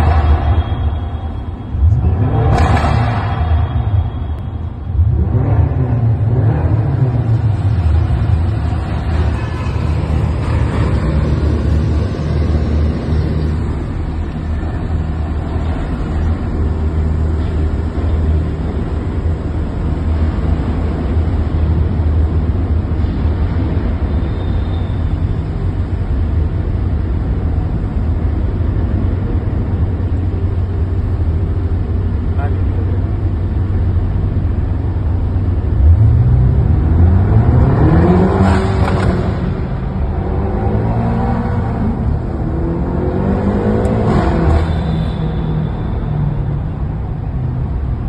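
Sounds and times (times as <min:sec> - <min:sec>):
car engine running loud: 0:00.0 - 0:48.0
road noise: 0:00.0 - 0:48.0.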